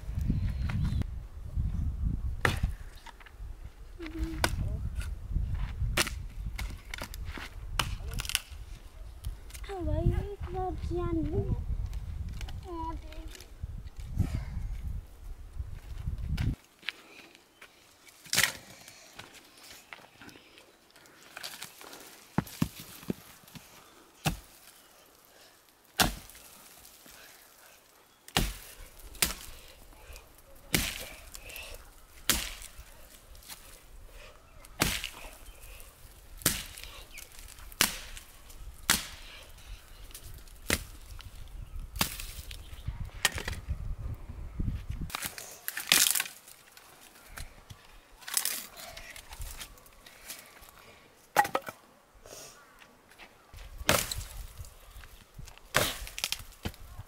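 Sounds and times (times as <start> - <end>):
axe chopping wood: 6.0 - 7.1, 24.2 - 24.6, 26.0 - 26.4, 28.3 - 29.5, 30.7 - 31.2, 32.2 - 32.8, 34.8 - 35.3, 36.4 - 36.9, 37.7 - 38.2, 38.9 - 39.2, 40.6 - 40.9, 51.4 - 51.8, 53.9 - 54.3, 55.7 - 56.8.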